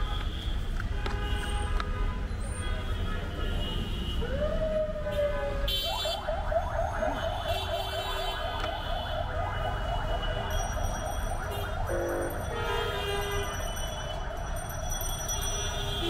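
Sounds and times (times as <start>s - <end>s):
street traffic hum: 0.0s - 16.0s
electronic siren yelping: 5.9s - 12.6s.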